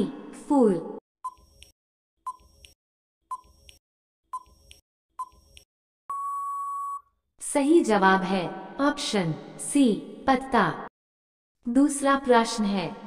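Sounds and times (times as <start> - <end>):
timer beeping ticks: 2.3 - 7.0
steady electronic beep: 6.1 - 7.0.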